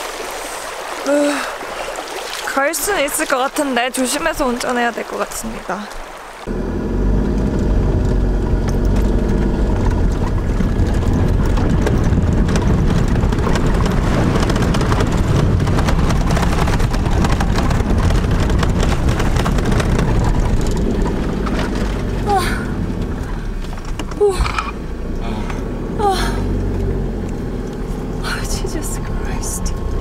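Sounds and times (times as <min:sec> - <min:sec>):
water rushing and splashing: 0:00.0 - 0:30.0
vehicle engine running: 0:06.4 - 0:30.0.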